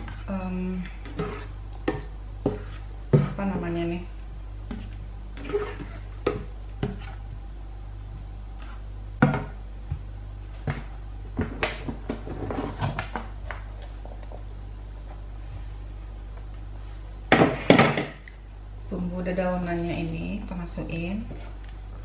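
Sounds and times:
spatula scraping metal pan: 1.0 - 1.6, 5.4 - 6.1.

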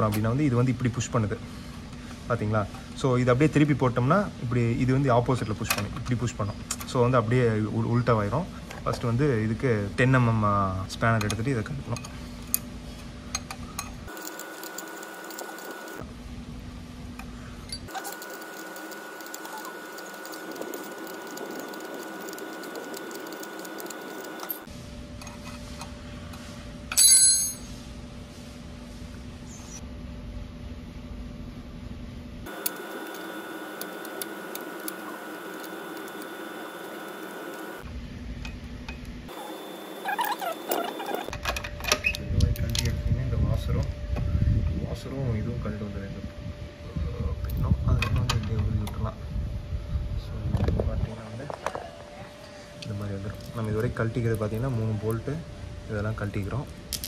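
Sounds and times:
steady hum: 0.0 - 57.0
ringing metallic clink: 26.9 - 27.7.

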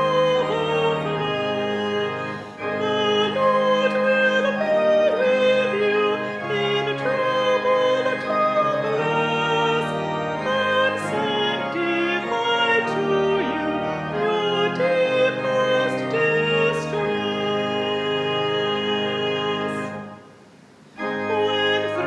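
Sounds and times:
person singing with vibrato: 0.0 - 20.3, 20.9 - 22.0
instrumental accompaniment: 0.0 - 22.0.

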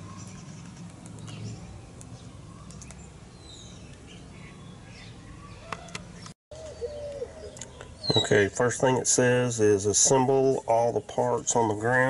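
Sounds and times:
birds chirping and whistling: 0.0 - 8.8
dove cooing: 5.4 - 8.5.

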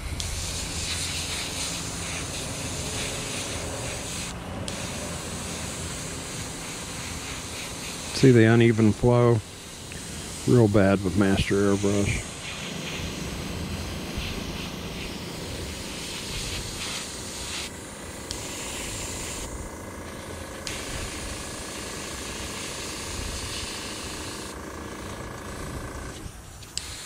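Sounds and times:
steady low rumble: 0.0 - 21.6
airbrush spraying paint: 0.0 - 27.0.

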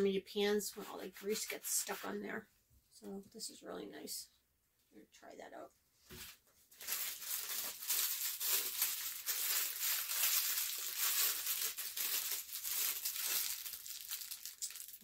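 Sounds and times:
plastic packaging crinkling: 6.2 - 15.0.

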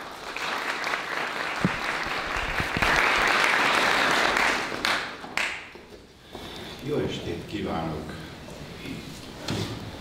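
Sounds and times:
audience applauding: 0.0 - 5.7.

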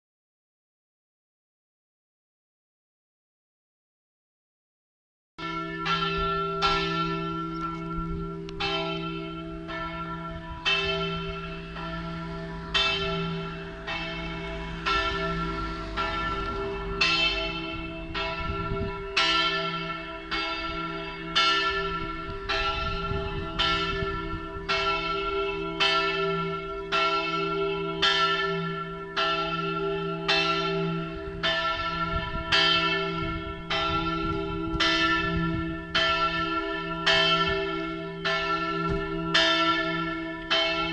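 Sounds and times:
large church bell ringing: 5.4 - 40.9.

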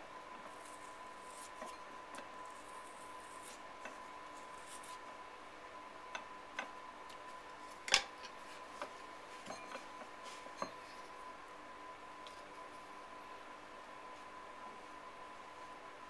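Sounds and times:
clay bowl being handled: 8.3 - 11.2.

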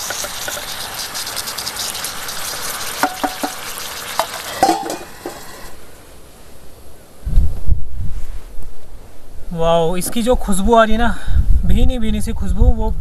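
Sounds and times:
spoon clicking and scraping: 0.0 - 5.7
chicken sizzling in hot oil: 0.0 - 5.9.

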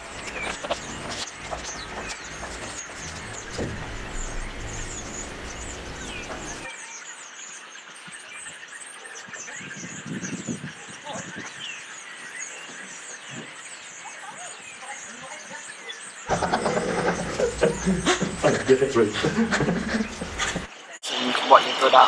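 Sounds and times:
low background hum: 0.0 - 6.7
small birds chirping: 0.0 - 21.0.

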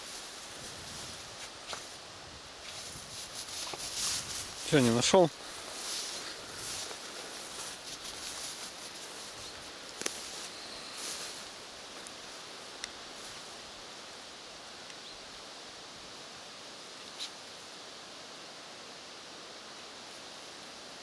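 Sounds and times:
dry grass rustling: 0.0 - 14.6
steady hiss: 0.0 - 21.0.

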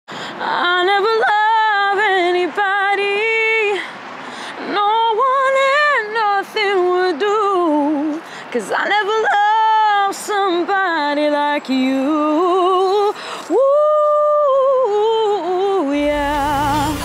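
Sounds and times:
woman singing solo: 13.5 - 17.0.

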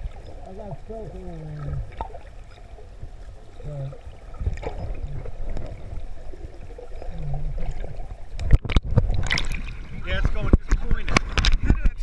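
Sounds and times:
underwater rumble of moving water: 0.0 - 12.0
water splashing and sloshing: 0.0 - 12.0.

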